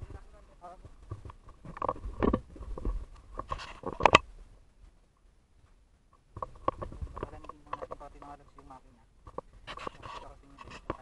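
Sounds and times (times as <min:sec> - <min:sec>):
camera handling clicks and rustling: 0:03.4 - 0:04.3.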